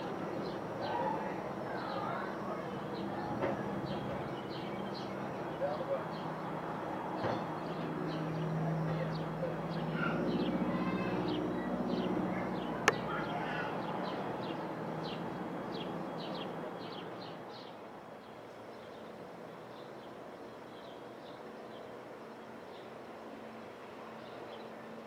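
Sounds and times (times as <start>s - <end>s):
birds chirping: 0.0s - 25.0s
propeller aircraft engine drone: 0.0s - 25.0s.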